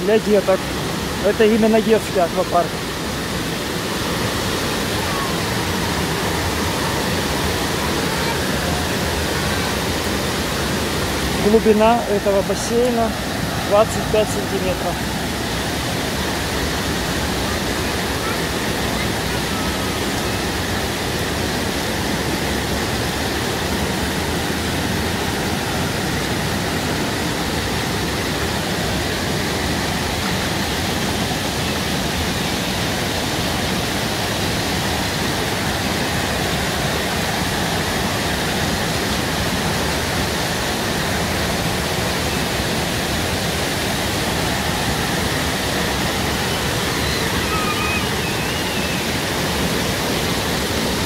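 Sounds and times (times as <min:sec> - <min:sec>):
water splashing from fountains: 0:00.0 - 0:51.0.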